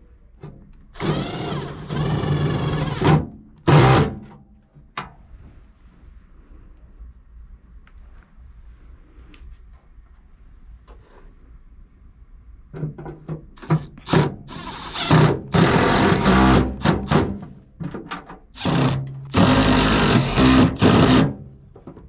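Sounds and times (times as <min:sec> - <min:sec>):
cordless power tool bursts: 0:00.9 - 0:04.2, 0:13.6 - 0:17.4, 0:18.6 - 0:21.4.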